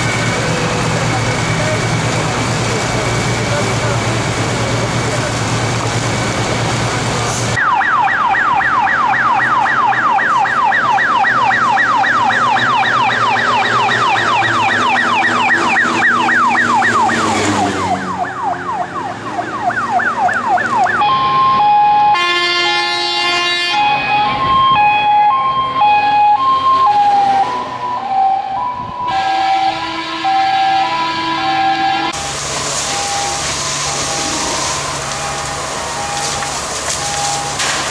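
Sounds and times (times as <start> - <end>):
fire engine siren yelp: 0.0 - 37.9
two-note siren tone: 7.6 - 32.3.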